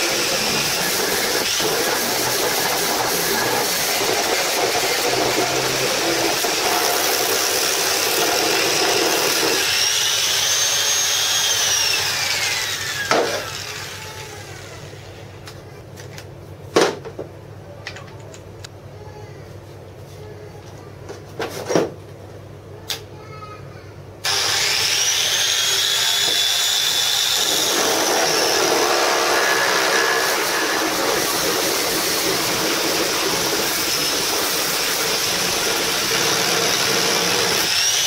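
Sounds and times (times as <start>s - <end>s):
angle grinder sanding wood: 0.0s - 14.0s, 24.3s - 38.0s.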